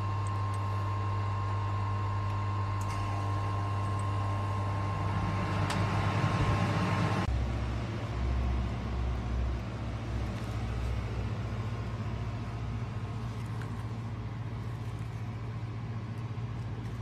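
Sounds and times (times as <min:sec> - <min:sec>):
cooling fan: 0:00.0 - 0:17.0
laser welding machine hum: 0:00.0 - 0:17.0.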